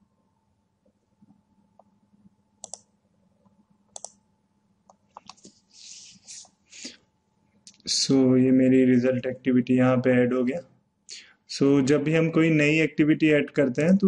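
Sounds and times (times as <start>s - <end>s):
short hiss: 5.5s - 7.0s.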